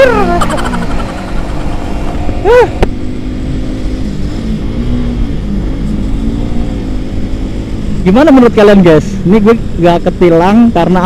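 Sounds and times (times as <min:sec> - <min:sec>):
rising and falling tone: 0:00.0 - 0:07.4
low rumble: 0:00.0 - 0:11.0
motorcycle engine cruising: 0:00.0 - 0:11.0.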